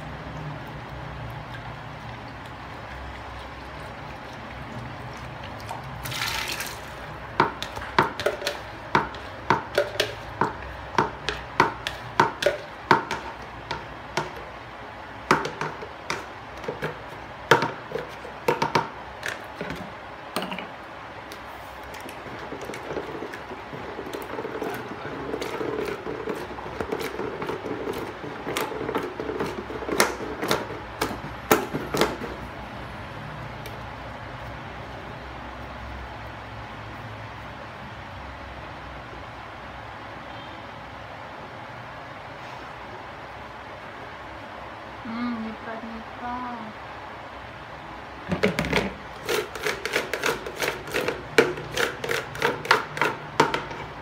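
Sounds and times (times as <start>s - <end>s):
liquid pouring: 0.0s - 8.6s
paddle churning thick batter: 0.0s - 20.2s, 21.3s - 32.9s, 48.4s - 54.0s
whisk striking plastic bucket: 5.7s - 14.5s, 15.2s - 19.9s, 22.0s - 32.5s, 48.3s - 54.0s.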